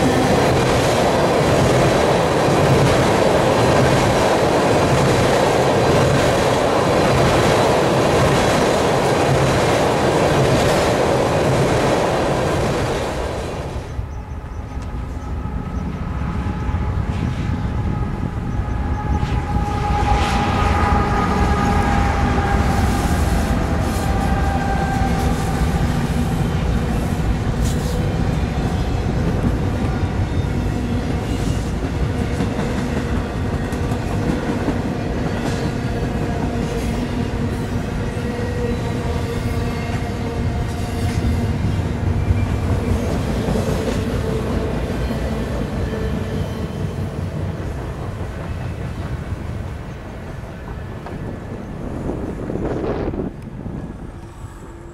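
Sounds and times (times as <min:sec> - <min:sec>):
locomotive whine: 0:00.0 - 0:54.9
train wheels rumbling on rail: 0:00.0 - 0:54.9
wind buffeting microphone: 0:47.4 - 0:54.9.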